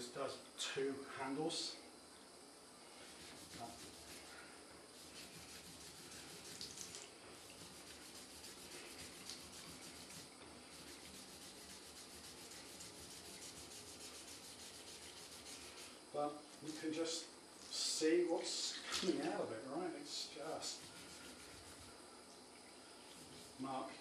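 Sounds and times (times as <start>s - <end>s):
sponge scrubbing cork: 3.0s - 16.0s, 20.5s - 22.0s, 23.1s - 23.7s.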